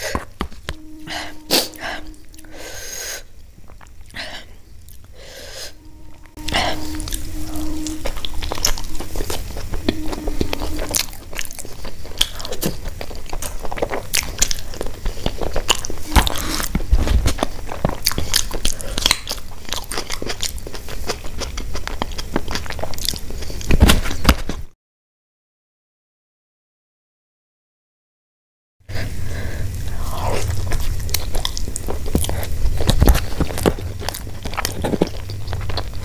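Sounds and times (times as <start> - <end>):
chewing food: 10.8 - 24.6, 30.3 - 36.0.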